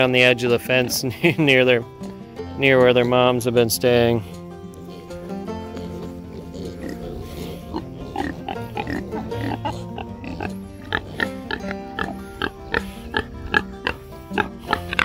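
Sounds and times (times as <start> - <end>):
pigs grunting: 0.0 - 15.0.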